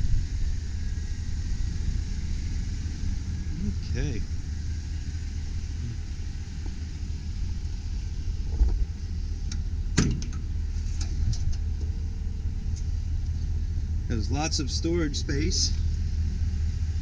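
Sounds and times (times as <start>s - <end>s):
truck engine idling: 0.0s - 17.0s
sharp clunk: 10.0s - 10.4s.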